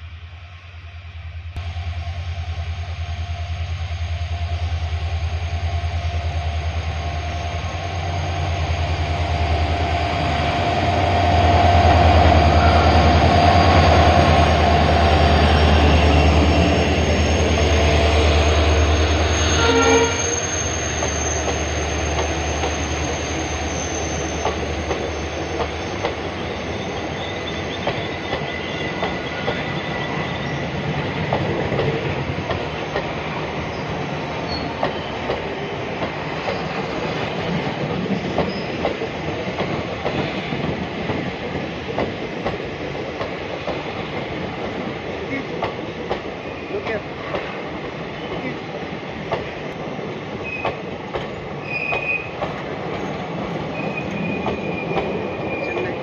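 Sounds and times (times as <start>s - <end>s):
train passing with deep hum: 0.0s - 56.0s
faint high squeal: 11.5s - 16.6s, 18.7s - 30.8s, 51.6s - 52.4s, 53.7s - 55.9s.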